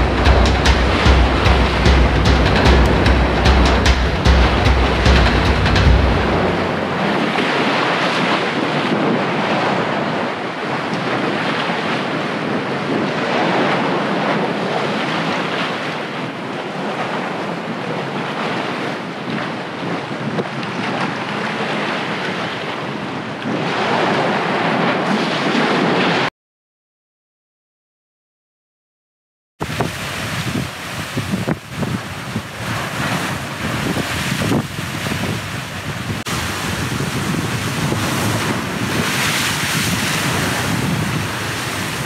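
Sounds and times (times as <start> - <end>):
sea waves washing: 0.0 - 10.6, 29.6 - 42.0
wind buffeting microphone: 29.6 - 42.0.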